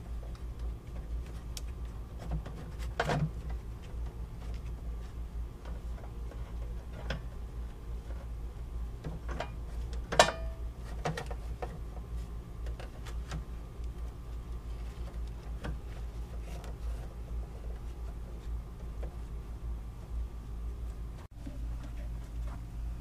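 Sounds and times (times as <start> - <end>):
wire clicks and taps: 0.2 - 4.7.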